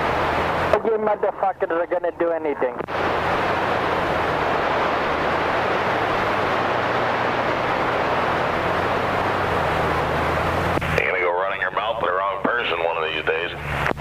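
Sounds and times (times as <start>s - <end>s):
radio static hiss: 0.0s - 14.0s.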